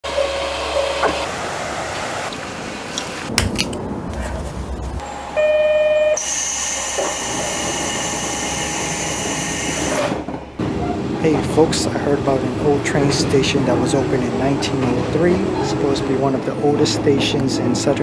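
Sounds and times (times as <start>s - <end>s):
train running: 3.6s - 18.0s
short pitched beep: 5.0s - 6.4s.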